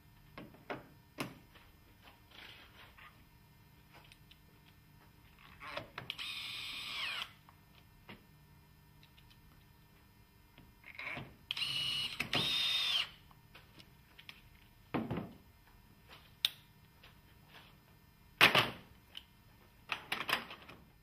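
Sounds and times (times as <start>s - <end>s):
cordless screwdriver running: 11.6s - 13.1s.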